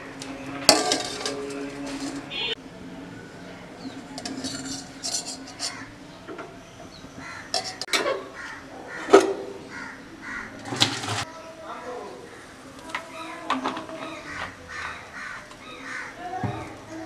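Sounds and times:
metal lid clank: 0.2s - 2.3s, 4.2s - 5.9s, 7.5s - 8.2s.

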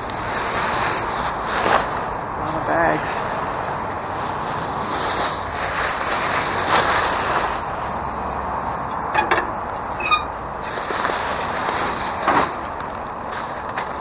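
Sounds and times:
outdoor background noise: 0.0s - 14.0s
brief squeak: 10.0s - 10.3s
trash bags rustling: 10.2s - 14.0s.

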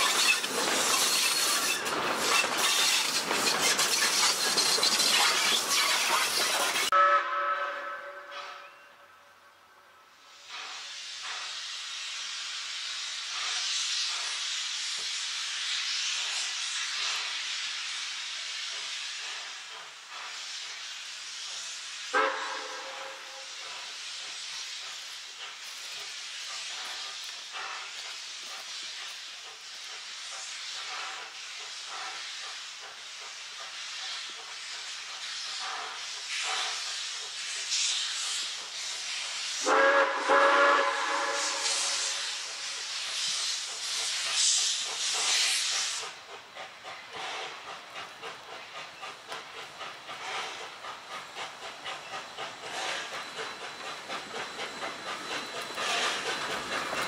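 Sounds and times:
steam hissing from locomotive: 0.0s - 57.0s
steam whistle: 6.9s - 9.4s, 22.1s - 23.5s, 39.6s - 42.5s.

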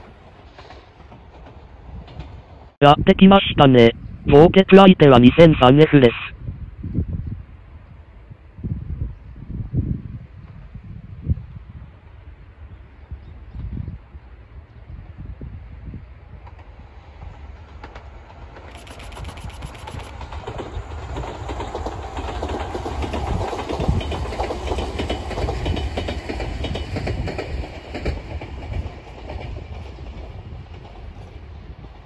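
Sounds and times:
electric train passing: 16.1s - 32.0s.

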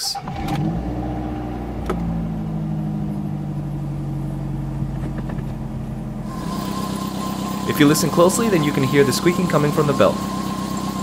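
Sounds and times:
car engine idling: 0.0s - 11.0s
drive belt squeal: 6.2s - 11.0s.

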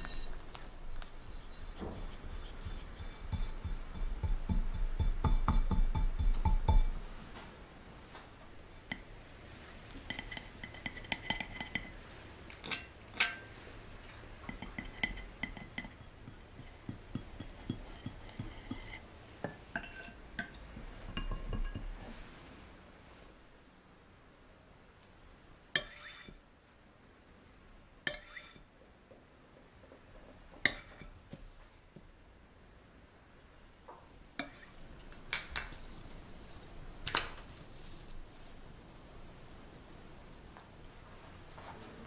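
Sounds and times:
spatula scraping buttercream: 0.0s - 5.9s, 14.6s - 19.1s.

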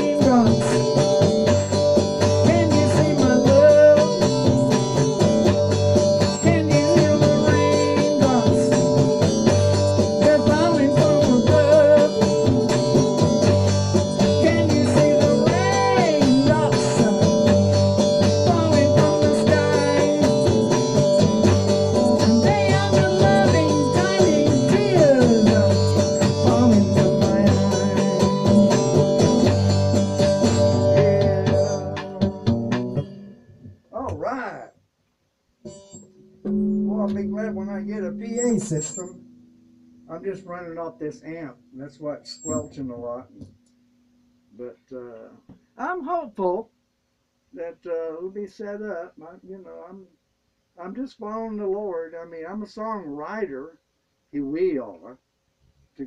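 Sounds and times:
amp whine: 0.0s - 34.6s, 35.6s - 44.6s
bluesy electric guitar: 0.0s - 34.7s, 35.6s - 43.6s.

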